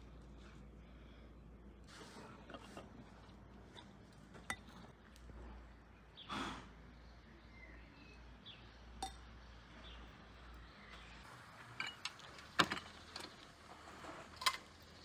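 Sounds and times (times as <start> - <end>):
faint bird chirps: 6.0 - 8.9.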